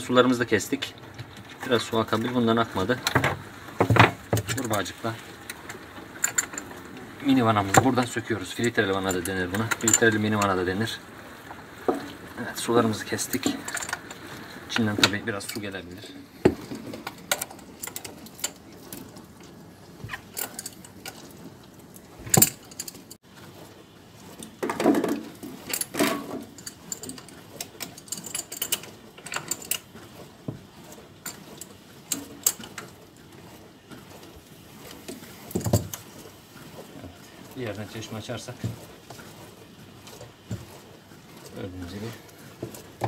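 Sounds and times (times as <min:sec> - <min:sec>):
metal wrench and fittings clinking: 0:06.2 - 0:06.7, 0:08.6 - 0:10.5, 0:13.2 - 0:14.2, 0:20.1 - 0:21.2, 0:22.3 - 0:23.2, 0:25.6 - 0:29.9.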